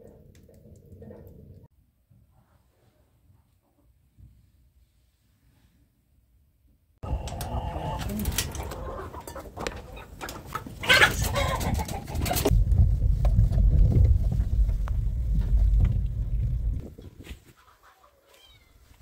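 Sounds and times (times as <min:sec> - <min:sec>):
chickens clucking: 0:07.0 - 0:12.5, 0:16.9 - 0:18.6
steady low rumble: 0:12.5 - 0:16.9.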